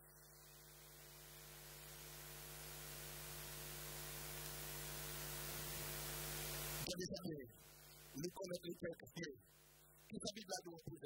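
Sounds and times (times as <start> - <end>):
electrical hum: 0.0 - 8.5.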